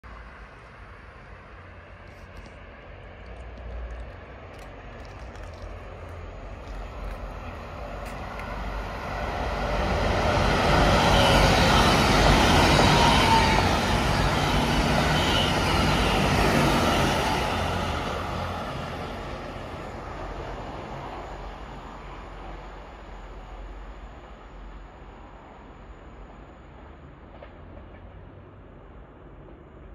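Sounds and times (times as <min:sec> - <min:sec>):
diesel train passing: 0:00.0 - 0:29.9.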